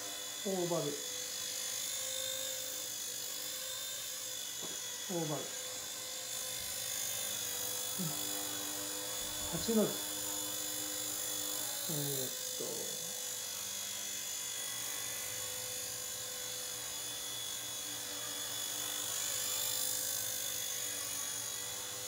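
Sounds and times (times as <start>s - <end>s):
small rc helicopter whine and buzz: 0.0s - 22.0s.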